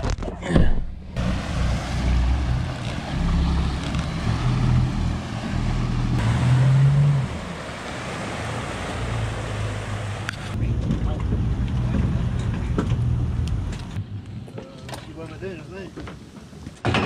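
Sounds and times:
wake churning water: 0.6 - 10.6
boat engine running: 1.2 - 13.7.

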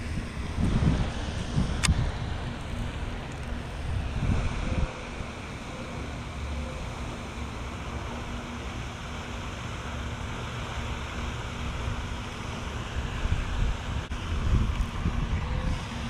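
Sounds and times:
wind buffeting microphone: 0.0 - 6.2, 12.8 - 16.0
faint steady hum: 0.0 - 16.0.

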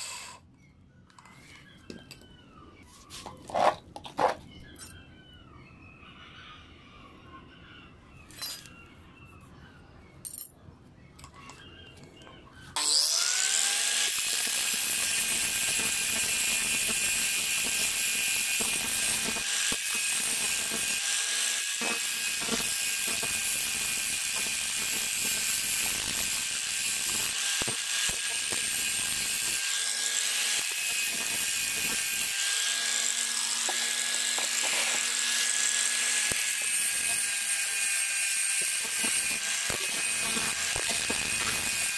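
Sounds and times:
angle grinder grinding steel: 0.0 - 0.4, 12.7 - 41.9.

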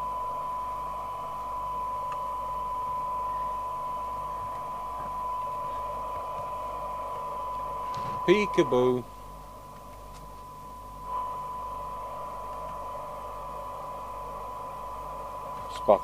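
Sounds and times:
steady test tone: 0.0 - 16.0
radio hiss: 3.2 - 9.2, 11.0 - 16.0.

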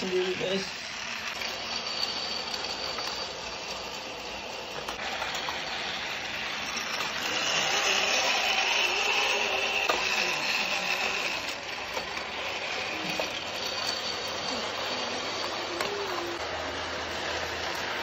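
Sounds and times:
toy train motor whirring: 0.0 - 18.0
toy train wheels rattling: 0.0 - 18.0.

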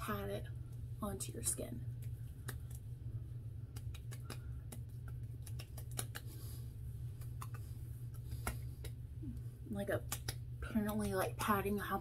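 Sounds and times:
steady low hum: 0.0 - 12.0
fingertips patting skin: 1.9 - 9.1, 10.0 - 11.2.

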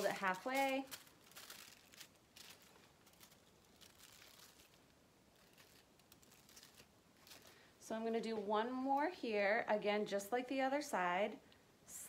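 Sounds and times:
foil crinkling: 0.0 - 7.7.

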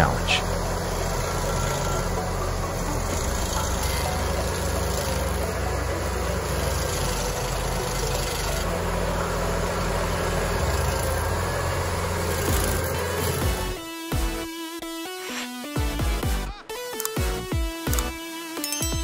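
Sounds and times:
stump grinder grinding stump: 0.0 - 13.8.

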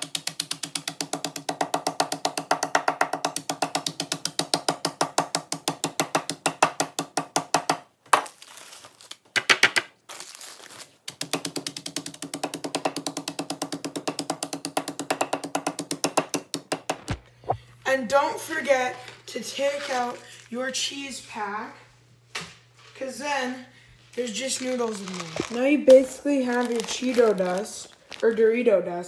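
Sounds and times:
plastic hammer pounding chips: 0.0 - 8.3, 9.3 - 9.9, 11.1 - 17.6
plastic bag rustling: 8.2 - 9.3, 10.0 - 11.0, 18.7 - 20.7, 24.1 - 28.7.

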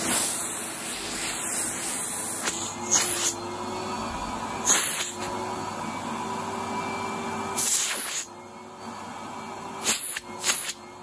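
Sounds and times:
loud bursts of rushing air: 0.0 - 3.4
vacuum cleaner humming: 0.0 - 11.0.

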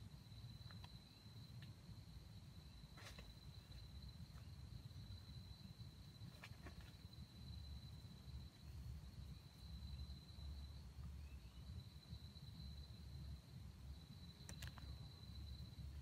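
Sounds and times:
faint ticks: 14.4 - 15.1.

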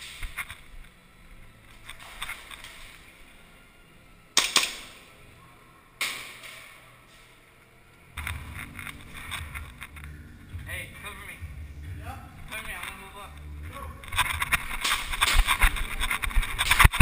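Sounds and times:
airsoft gun shots: 4.4 - 5.0.

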